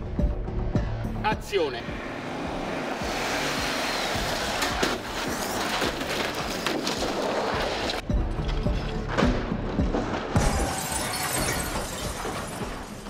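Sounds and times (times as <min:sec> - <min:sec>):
music: 0:00.0 - 0:13.0
tyres hissing on wet road: 0:02.9 - 0:04.8.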